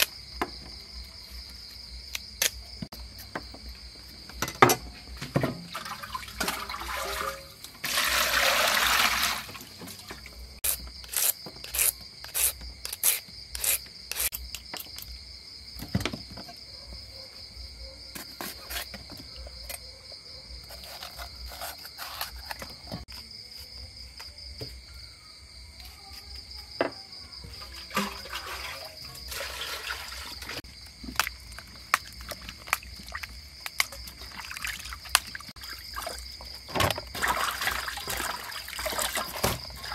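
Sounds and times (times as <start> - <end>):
water splashing in basin: 5.2 - 10.6, 27.5 - 39.9.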